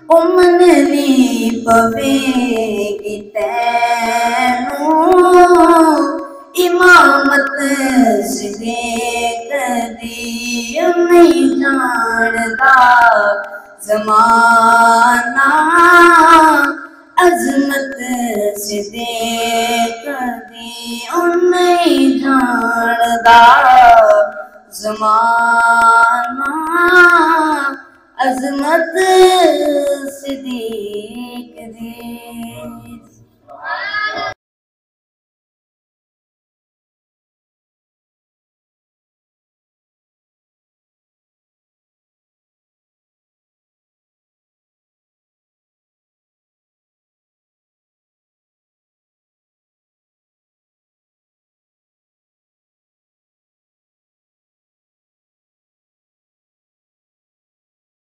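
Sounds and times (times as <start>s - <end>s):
boy singing unaccompanied: 0.0s - 34.4s.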